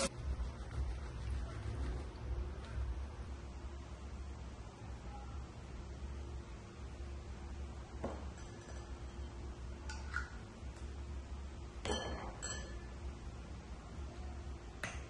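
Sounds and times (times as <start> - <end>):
low steady hum: 0.0 - 15.0
glass bottles clinking: 11.8 - 12.9.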